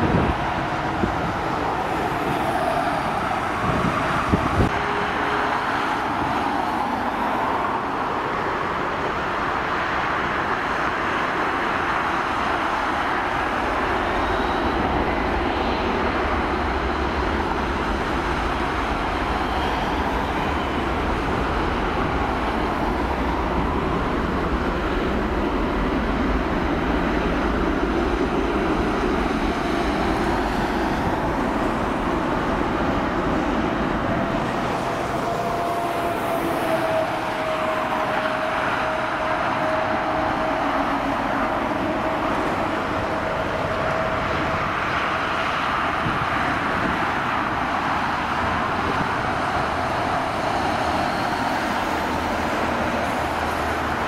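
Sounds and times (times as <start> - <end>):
jet engines roaring: 0.0 - 54.0.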